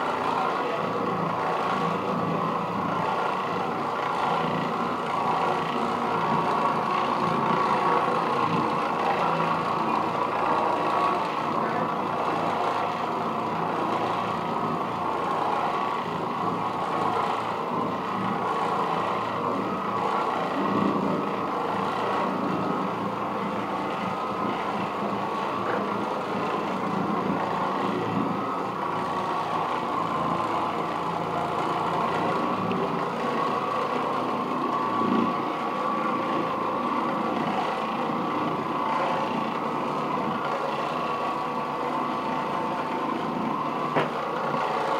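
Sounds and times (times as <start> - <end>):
floor machine motor hum: 0.0 - 44.9.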